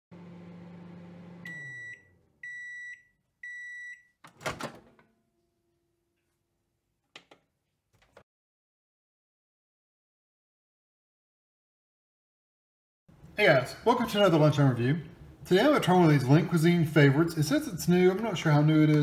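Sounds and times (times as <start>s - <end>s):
microwave oven humming: 0.1s - 2.8s
high microwave beeps: 1.4s - 4.2s.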